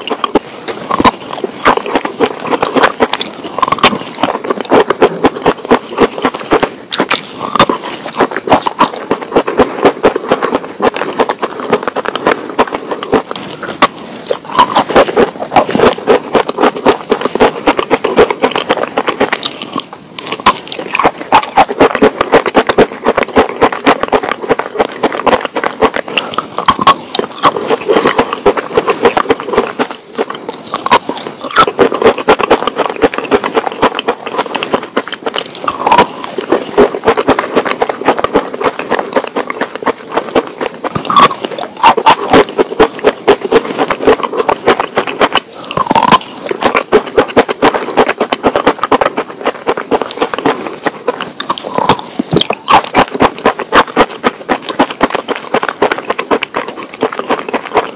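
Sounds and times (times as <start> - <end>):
crunching and chewing food: 0.0 - 57.9.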